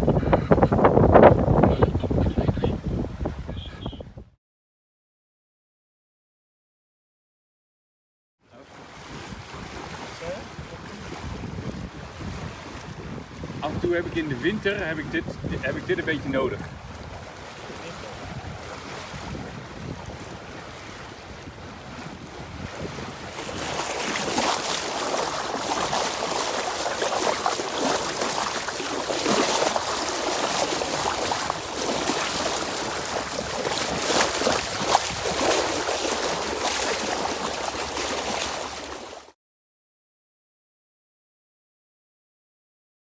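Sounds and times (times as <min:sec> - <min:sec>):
wind buffeting microphone: 0:00.0 - 0:04.3, 0:09.0 - 0:39.0
water splashing along hull: 0:08.4 - 0:39.4.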